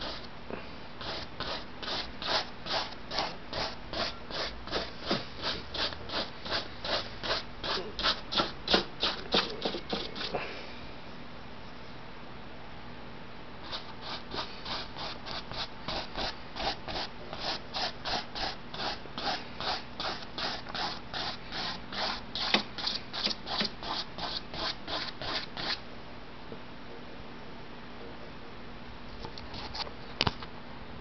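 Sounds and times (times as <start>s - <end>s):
paintbrush scrubbing on canvas: 0.0s - 0.3s, 1.0s - 10.4s, 13.6s - 25.8s.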